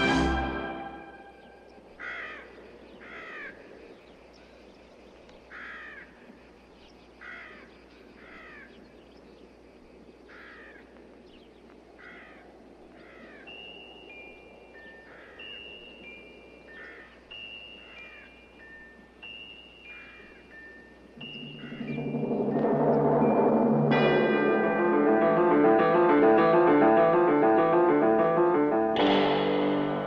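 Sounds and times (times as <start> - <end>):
orchestral brass music: 0.0 - 1.5, 21.2 - 30.0
crow cawing: 2.0 - 3.6, 5.5 - 6.2, 7.2 - 8.8, 10.3 - 10.9, 12.0 - 13.5, 15.0 - 15.5, 16.7 - 17.2.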